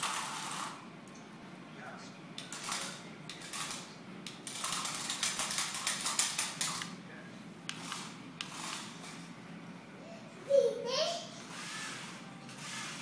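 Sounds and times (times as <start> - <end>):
toy car motor clicking rattle: 4.4 - 6.9.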